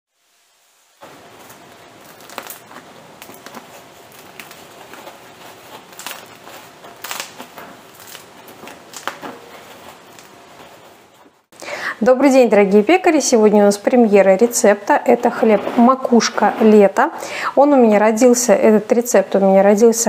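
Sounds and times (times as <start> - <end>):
bread crust crackling and crunching: 1.0 - 11.5, 13.9 - 17.5.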